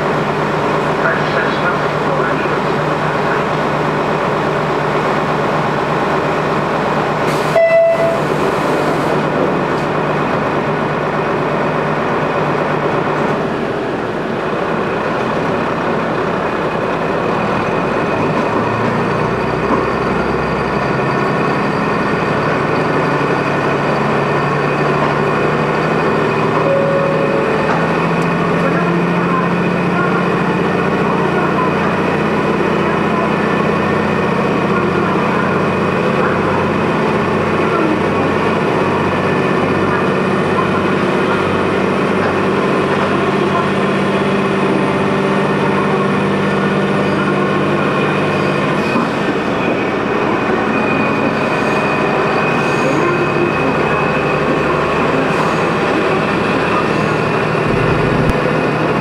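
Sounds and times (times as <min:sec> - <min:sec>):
diesel railcar engine and running rumble: 0:00.0 - 0:59.0
short sharp tone: 0:26.6 - 0:27.9, 0:57.6 - 0:59.0.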